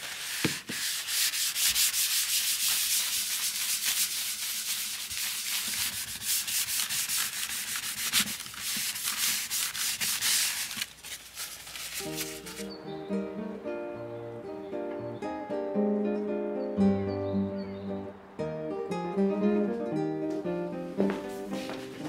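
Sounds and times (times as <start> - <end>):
cloth rubbing on copper plate: 0.0 - 12.6.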